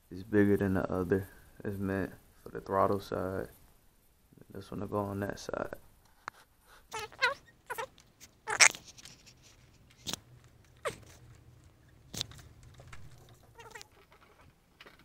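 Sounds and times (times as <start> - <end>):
rubber grip squeaking: 6.9 - 9.4, 13.2 - 14.4.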